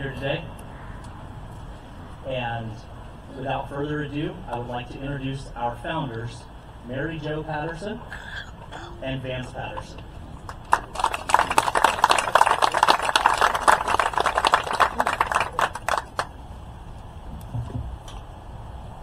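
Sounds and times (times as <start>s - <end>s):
crowd applauding: 10.4s - 16.3s.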